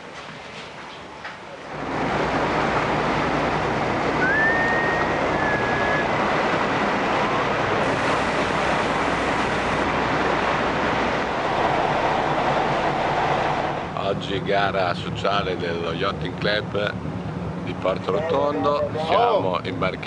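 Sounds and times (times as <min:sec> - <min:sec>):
boat diesel engines humming: 0:01.0 - 0:20.0
rushing wind and water: 0:01.7 - 0:14.0
brief high whistle: 0:04.2 - 0:06.1.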